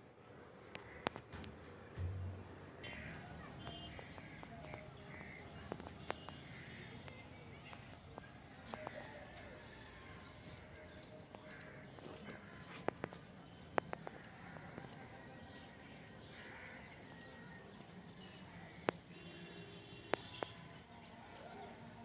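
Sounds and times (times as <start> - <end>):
high ticks and chirps: 2.8 - 18.0, 18.8 - 20.8.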